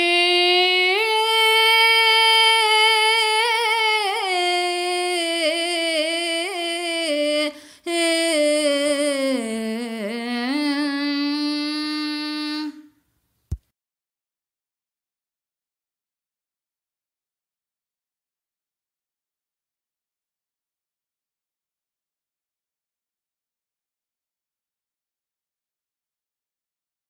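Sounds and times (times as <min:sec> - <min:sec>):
high voice singing held notes: 0:00.0 - 0:13.0.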